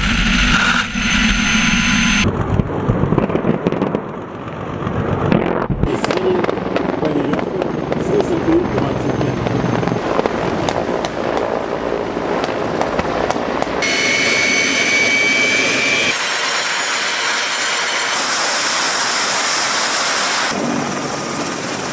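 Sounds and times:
helicopter engine and rotors: 0:00.0 - 0:21.9
high-pitched turbine whine: 0:00.0 - 0:21.9
sharp cracks: 0:05.2 - 0:13.8.

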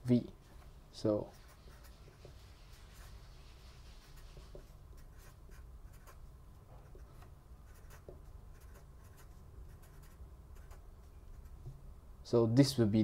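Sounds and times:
marker scratching on paper: 0:01.3 - 0:11.7.

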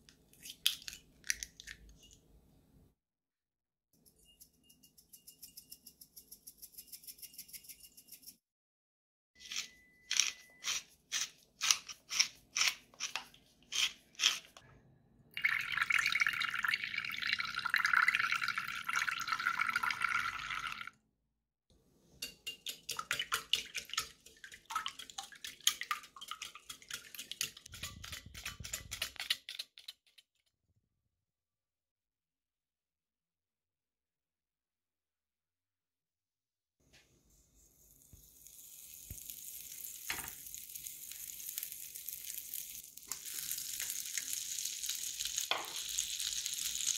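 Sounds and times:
milk pouring into bowl: 0:15.4 - 0:20.9
eggs beaten in bowl: 0:22.2 - 0:30.3.

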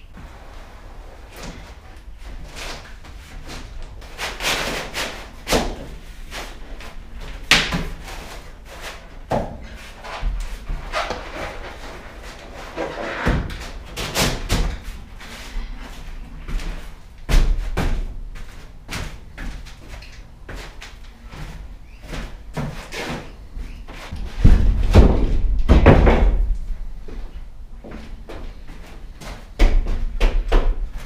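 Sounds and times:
wooden panels thumping down: 0:24.2 - 0:26.6
footsteps: 0:26.3 - 0:31.0.

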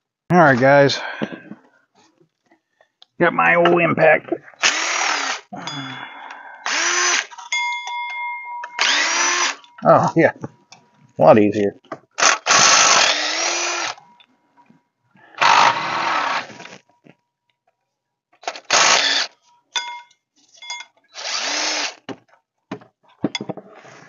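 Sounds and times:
impact tool bursts: 0:06.6 - 0:07.4, 0:08.6 - 0:09.7, 0:12.2 - 0:14.0, 0:15.4 - 0:16.8, 0:18.4 - 0:19.4.

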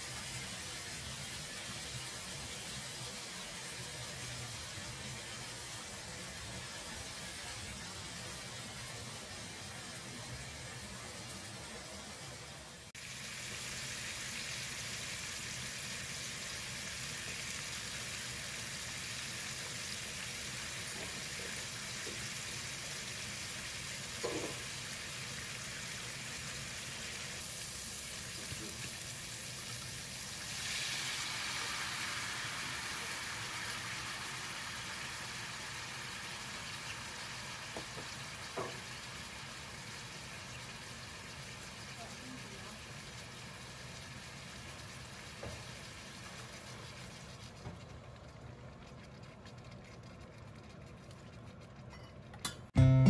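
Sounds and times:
meat sizzling in a frying pan: 0:00.0 - 0:12.0, 0:12.9 - 0:47.3
wine hitting hot pan: 0:23.4 - 0:25.6, 0:27.3 - 0:41.8.

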